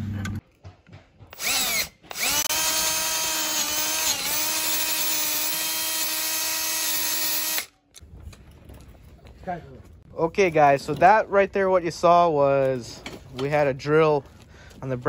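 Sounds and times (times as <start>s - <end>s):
cordless drill whining: 1.3s - 7.7s.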